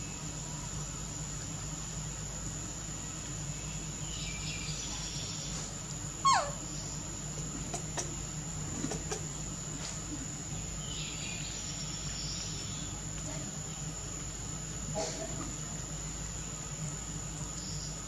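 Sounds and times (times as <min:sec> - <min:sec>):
steady low hum: 0:00.0 - 0:18.0
faint high chirps: 0:03.6 - 0:07.0.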